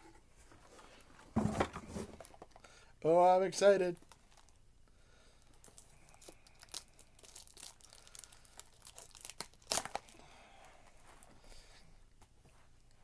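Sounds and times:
packaging crinkling and tearing: 4.0s - 4.6s, 5.4s - 10.2s.

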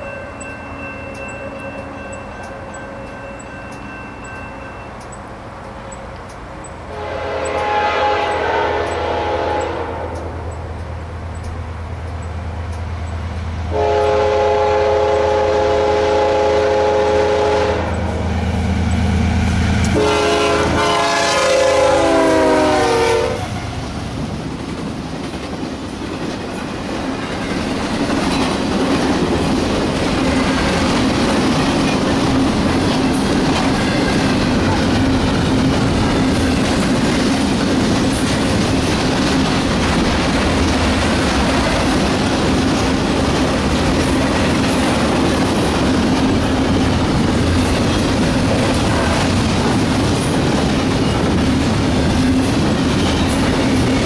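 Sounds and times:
locomotive air horn blasts: 6.9s - 10.5s, 13.7s - 18.2s, 19.9s - 23.6s
train cars rolling and clattering: 23.4s - 54.0s.

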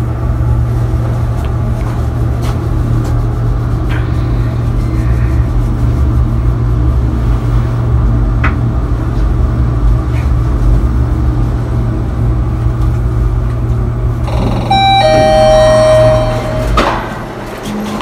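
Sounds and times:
lift car humming: 7.2s - 18.0s
two-tone arrival chime: 14.3s - 17.3s.

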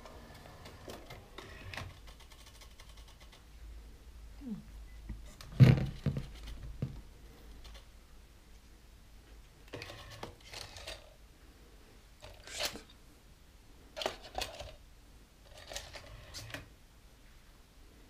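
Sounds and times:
plastic clicking and rattling: 14.0s - 14.8s.

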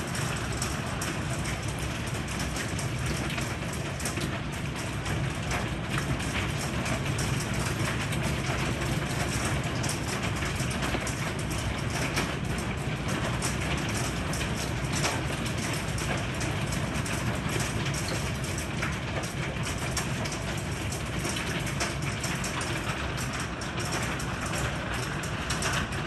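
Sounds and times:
heavy rain hissing: 0.0s - 5.3s, 22.4s - 26.0s
hailstones ticking on wood: 0.0s - 26.0s.

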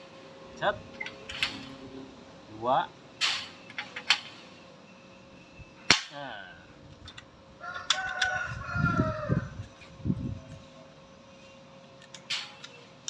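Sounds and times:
rooster crowing: 7.6s - 9.7s.

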